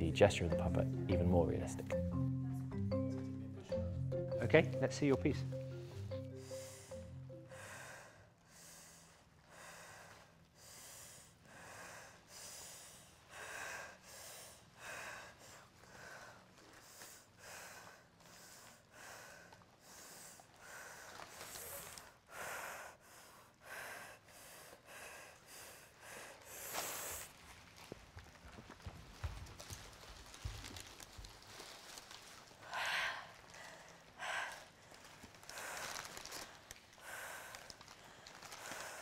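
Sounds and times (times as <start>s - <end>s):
quick rhythmic breathing: 4.3s - 27.4s, 32.6s - 39.0s.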